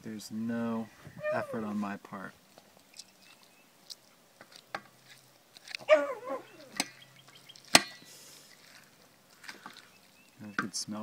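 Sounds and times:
dog whining: 1.1s - 1.7s, 5.8s - 6.8s.

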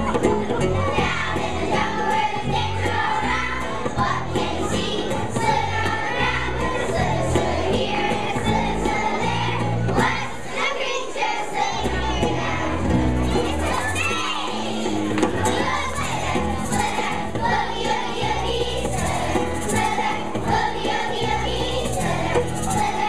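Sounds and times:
backing music with steady beat: 0.0s - 10.5s, 11.9s - 23.0s
children singing in unison: 0.0s - 23.0s.

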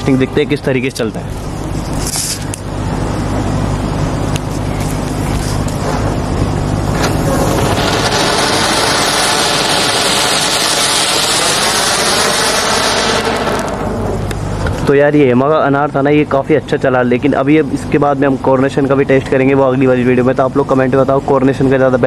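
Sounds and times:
firework fountain hissing: 4.9s - 14.9s.

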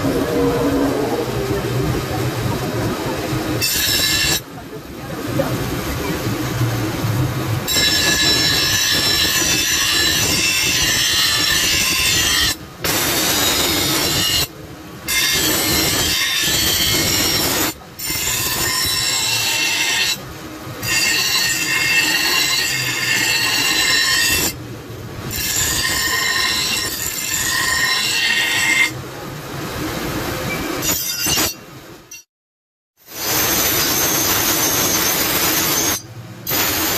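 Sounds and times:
grinding wheel screeching on steel: 3.6s - 4.4s, 7.7s - 14.5s, 15.1s - 20.2s, 20.8s - 24.6s, 25.2s - 29.0s, 30.4s - 32.3s, 33.1s - 36.9s.

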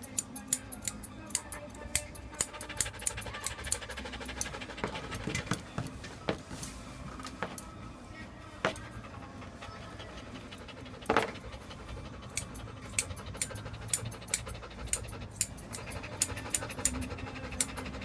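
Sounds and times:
scissors snipping dog fur: 0.0s - 5.6s, 12.2s - 18.0s.

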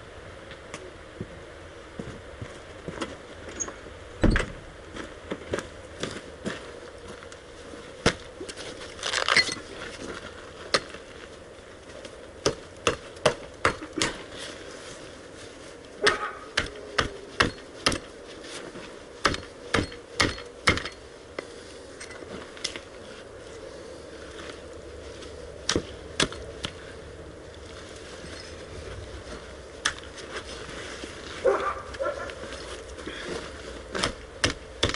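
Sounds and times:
hatchet chopping on wood: 12.4s - 14.2s, 16.1s - 18.0s, 19.2s - 21.0s, 34.0s - 34.9s.

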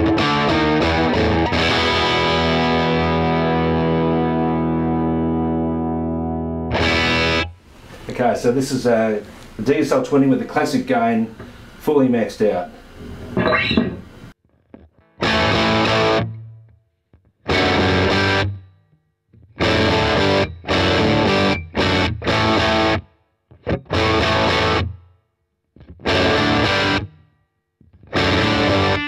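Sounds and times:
distorted electric guitar chords: 0.0s - 7.6s, 13.4s - 16.6s, 17.4s - 18.7s, 19.4s - 25.0s, 25.8s - 27.2s, 27.9s - 29.0s.

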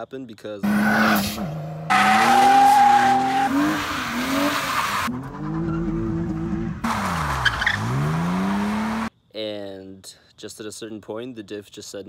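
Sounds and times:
tyres squealing on pavement: 0.6s - 6.2s, 6.9s - 9.1s
car engine revving hard: 6.0s - 9.1s.

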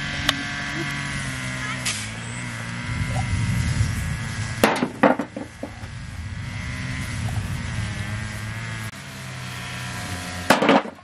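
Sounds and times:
engine running: 0.0s - 11.0s
sharp knocks: 4.6s - 5.9s, 10.5s - 11.0s.

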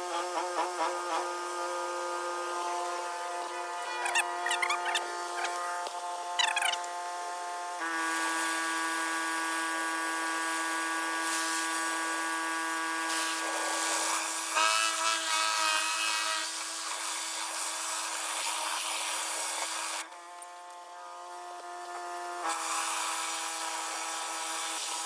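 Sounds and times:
pressure washer humming: 0.0s - 25.0s
water spray hissing: 10.2s - 12.0s.

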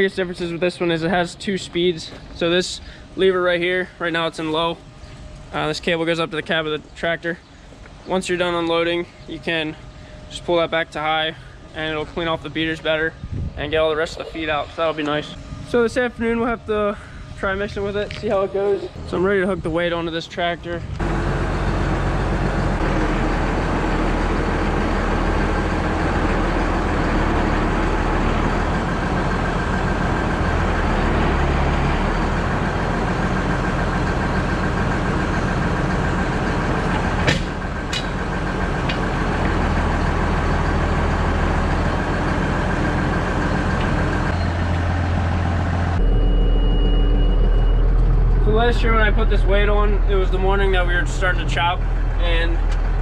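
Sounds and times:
tractor diesel engine running: 0.0s - 53.0s
metal clank: 37.2s - 38.2s.

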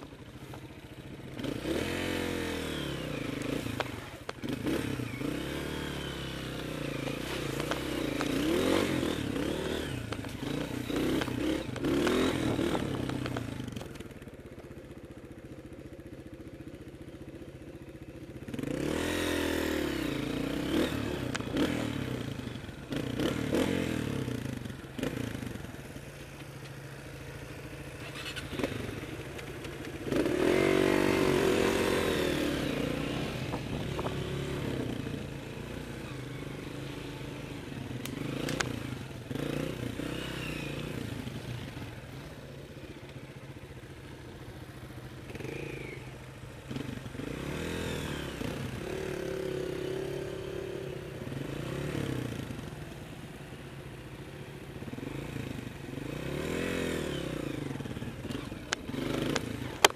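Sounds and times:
dirt bike engine revving: 1.2s - 14.0s, 18.5s - 25.6s, 27.8s - 42.4s, 44.6s - 52.7s, 54.8s - 59.9s.

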